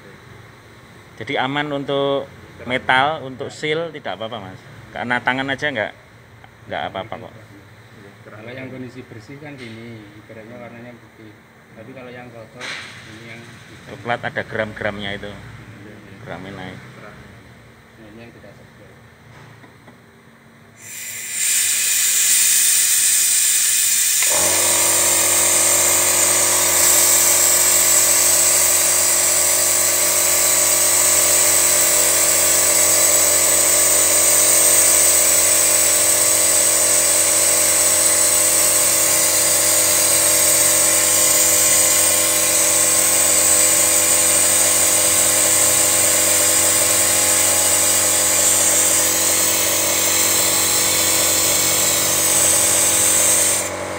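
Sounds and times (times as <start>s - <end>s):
loud hiss of air: 20.7s - 53.9s
electric motor hum: 20.8s - 53.9s.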